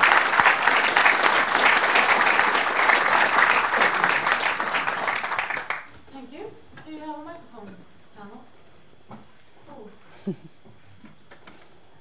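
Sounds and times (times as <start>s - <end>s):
audience applauding: 0.0s - 5.9s.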